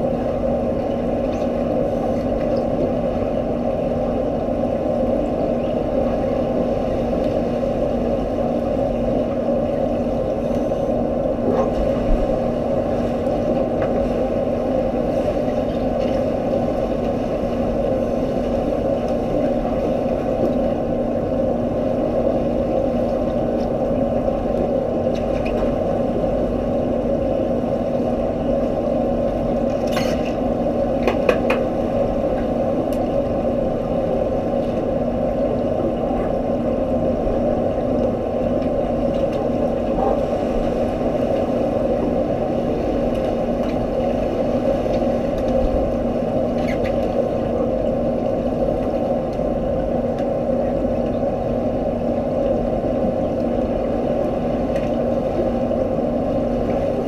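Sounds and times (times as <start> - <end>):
underwater hum and hiss: 0.0 - 57.0.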